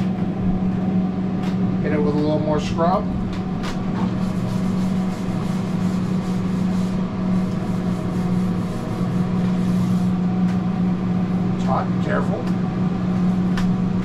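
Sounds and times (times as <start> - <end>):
low hum: 0.0 - 14.0
scouring pad scrubbing metal griddle: 4.0 - 10.2.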